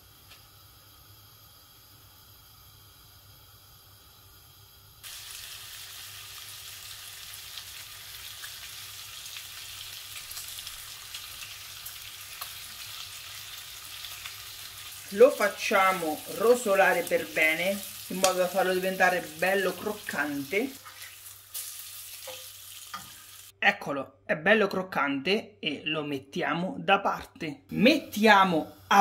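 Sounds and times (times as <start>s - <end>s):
meat sizzling in a frying pan: 4.2s - 23.6s.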